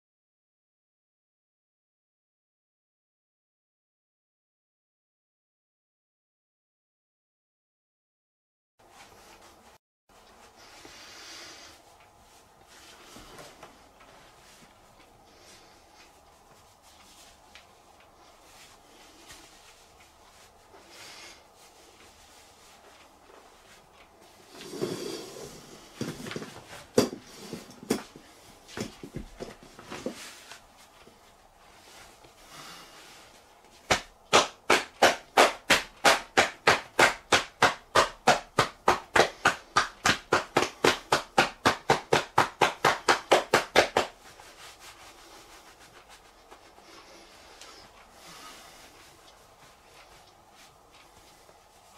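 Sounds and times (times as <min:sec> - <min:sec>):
hand rubbing shirt: 0:08.8 - 0:51.9
rhythmic tapping on back: 0:33.9 - 0:47.2.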